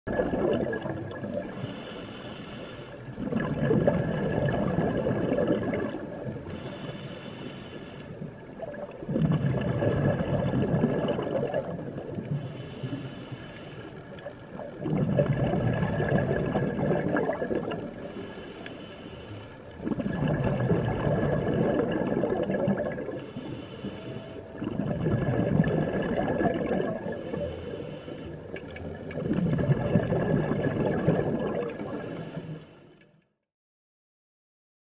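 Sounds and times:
exhaled bubbles rushing: 0.1 - 1.6, 3.1 - 6.5, 8.5 - 12.4, 14.2 - 18.0, 19.8 - 23.2, 24.4 - 27.5, 28.5 - 32.3
regulator inhale hiss: 1.4 - 3.2, 6.4 - 8.4, 12.2 - 14.2, 17.9 - 19.8, 23.1 - 24.6, 27.0 - 28.6, 31.7 - 33.1.

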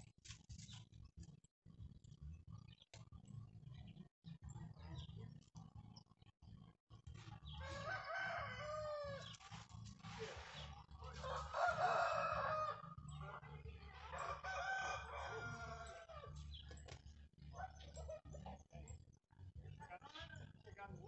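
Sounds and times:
rooster crowing: 7.6 - 9.2, 11.2 - 12.9, 14.1 - 16.3.

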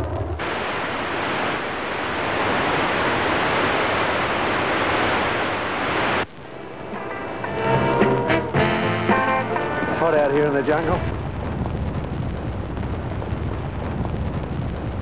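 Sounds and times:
television static hiss: 0.0 - 15.0.

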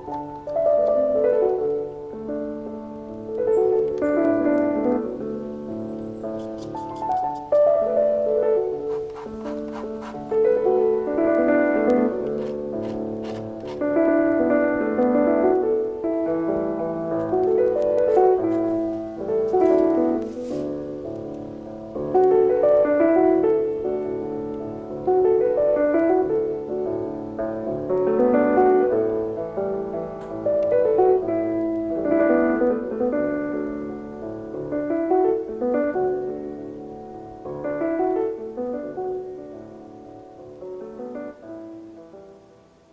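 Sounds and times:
solo piano music: 0.0 - 42.9.

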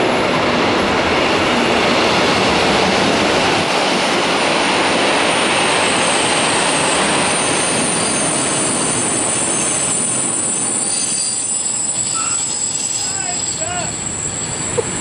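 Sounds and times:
train wheels rumbling on rails: 0.0 - 15.0
thin high squeal: 9.5 - 15.0.

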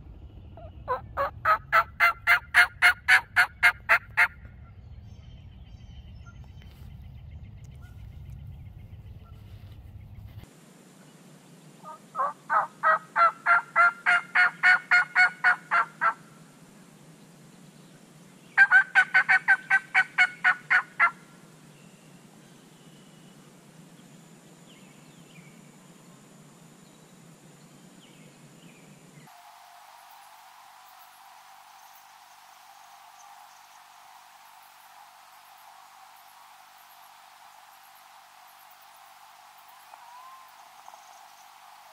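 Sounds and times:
turkey yelping: 0.6 - 4.4, 11.9 - 16.2, 18.6 - 21.2.

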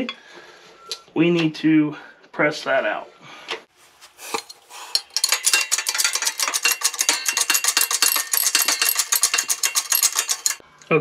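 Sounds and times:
hydraulic pump metallic clicking: 4.9 - 10.6.

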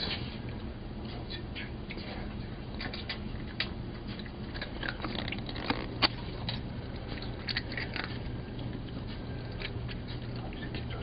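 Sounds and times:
cat crunching dry treats: 2.8 - 11.0.

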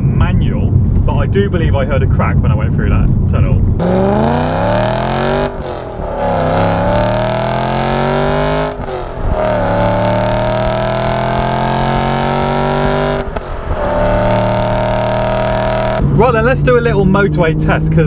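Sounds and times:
car engine accelerating through gears: 3.7 - 18.0.

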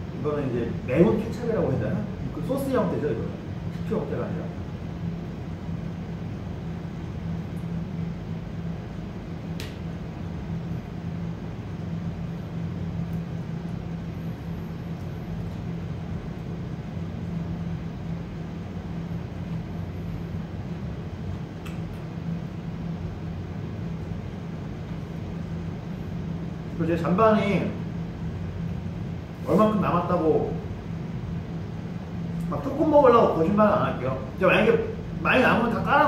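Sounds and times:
low mechanical hum: 0.0 - 36.0
sharp click: 9.6 - 9.8.

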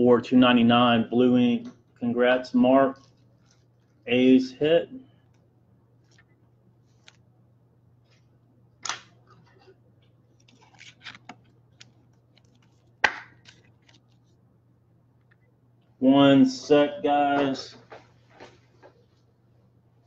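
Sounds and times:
faint low hum: 0.0 - 20.0
plastic sleeve rustling: 3.0 - 4.2, 10.3 - 14.4.

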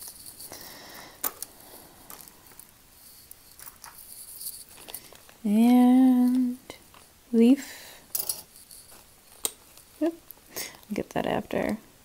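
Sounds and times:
metal jewelry clicking: 0.0 - 7.1, 8.1 - 10.4
plastic bag rustling: 0.0 - 7.2.

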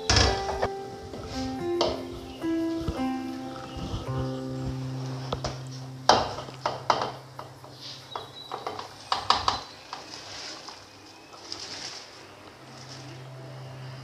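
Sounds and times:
rice sliding into boiling water: 9.9 - 13.2.

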